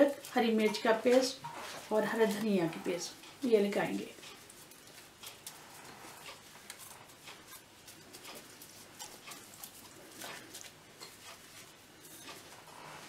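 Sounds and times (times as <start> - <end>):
wet squishing of paste rubbed on meat: 4.4 - 11.8.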